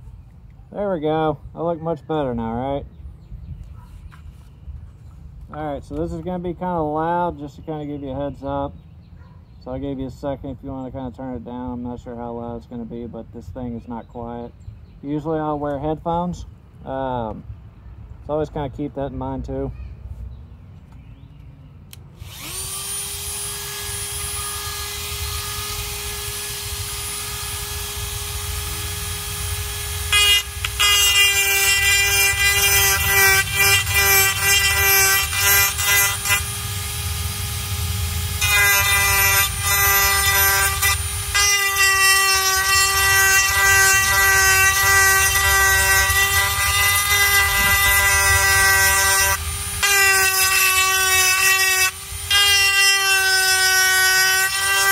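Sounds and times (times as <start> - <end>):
rotary tool whining: 22.2 - 54.9.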